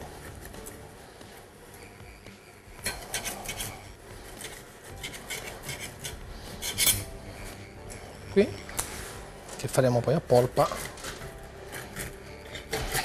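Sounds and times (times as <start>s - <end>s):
knife scraping fish skin: 2.7s - 9.3s, 10.6s - 13.0s.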